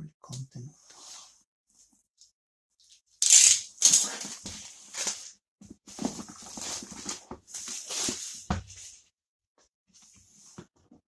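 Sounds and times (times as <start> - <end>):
plastic shrink-wrap tearing: 3.2 - 4.4.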